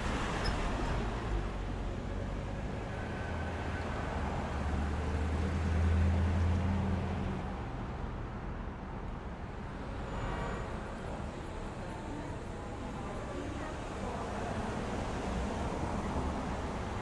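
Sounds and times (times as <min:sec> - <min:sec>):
road traffic noise: 0:00.0 - 0:17.0.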